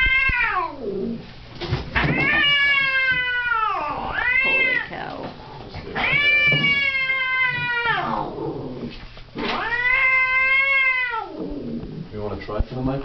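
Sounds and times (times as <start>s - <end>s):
cat yowling angrily: 0.0s - 1.2s, 2.0s - 5.1s, 6.0s - 8.4s, 9.4s - 11.7s.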